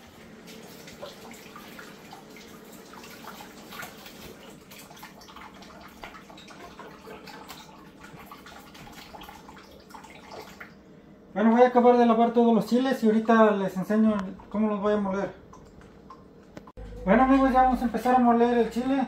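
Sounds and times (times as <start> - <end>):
water splashing and dripping: 0.0 - 10.8, 15.4 - 16.6.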